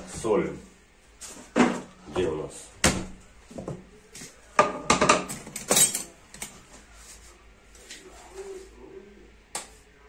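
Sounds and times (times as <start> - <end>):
kitchen items clattering: 4.6 - 6.6.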